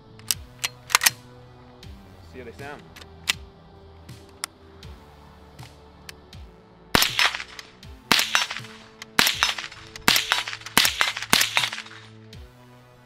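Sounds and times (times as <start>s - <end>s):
suppressed rifle shots: 7.0s - 12.1s.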